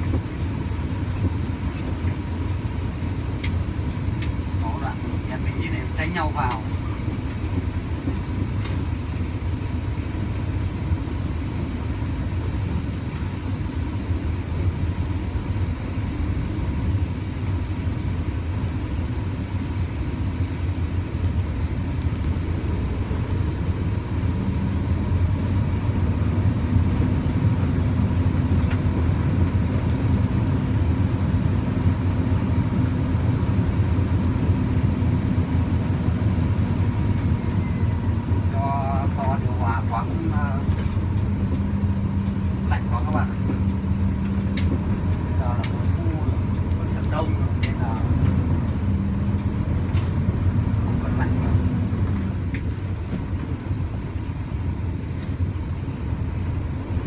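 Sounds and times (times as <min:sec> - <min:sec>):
truck engine rumble: 0:00.0 - 0:57.0.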